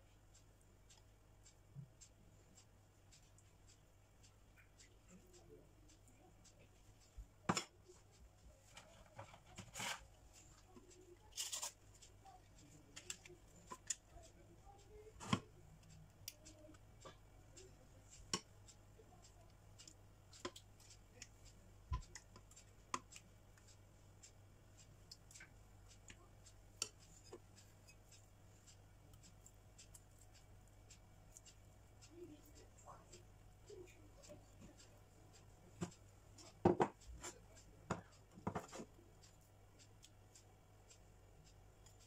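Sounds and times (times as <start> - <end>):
clicks and taps in glass dish: 37.9 - 38.8.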